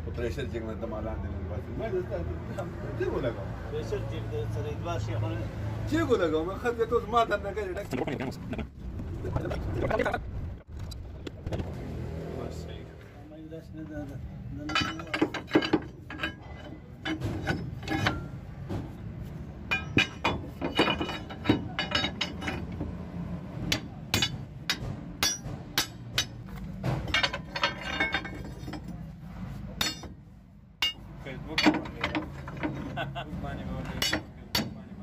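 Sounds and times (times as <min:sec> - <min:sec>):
hammer striking metal: 0:19.7 - 0:22.7, 0:23.7 - 0:28.8, 0:29.8 - 0:30.2, 0:30.8 - 0:32.3.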